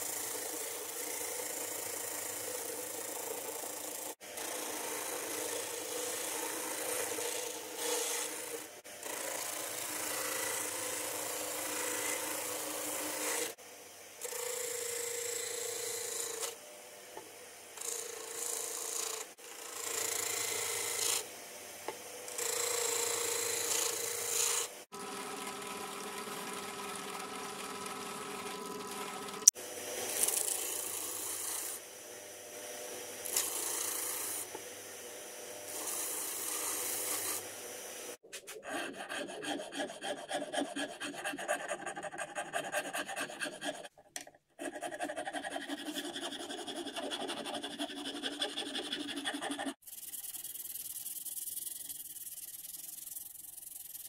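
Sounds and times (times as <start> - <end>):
disc sander sanding wood: 2.0 - 13.6, 33.2 - 43.9, 44.6 - 54.0.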